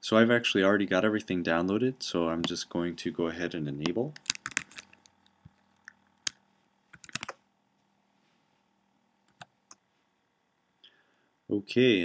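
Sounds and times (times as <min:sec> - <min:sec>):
computer keyboard keystrokes: 0:04.1 - 0:05.0, 0:07.0 - 0:07.4.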